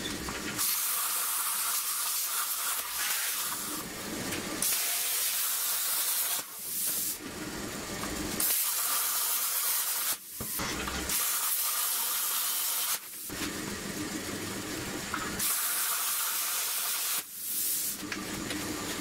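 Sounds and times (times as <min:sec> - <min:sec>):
plasma cutter hissing: 0:00.6 - 0:03.8, 0:04.6 - 0:07.2, 0:08.4 - 0:10.4, 0:11.1 - 0:13.3, 0:15.4 - 0:18.0.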